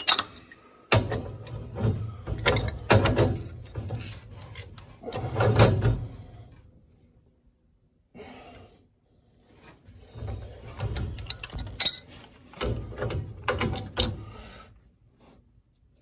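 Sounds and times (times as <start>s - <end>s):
pipe wrench clicking and scraping: 0.0s - 5.7s, 10.2s - 14.3s.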